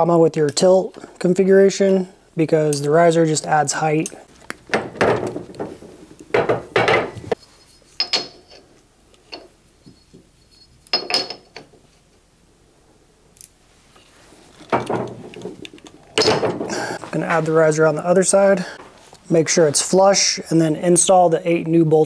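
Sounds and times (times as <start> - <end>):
metallic clinks and rattles: 4.8 - 11.9, 14.5 - 16.8.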